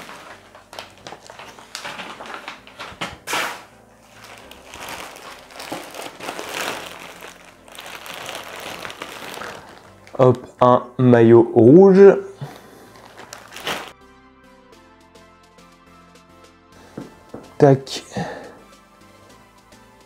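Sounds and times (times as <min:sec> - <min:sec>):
packaging rustling and crinkling: 0:00.0 - 0:10.5, 0:12.4 - 0:14.0.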